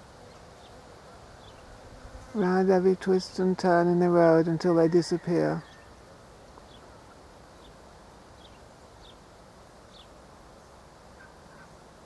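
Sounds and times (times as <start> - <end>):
faint background noise: 0.0 - 12.0.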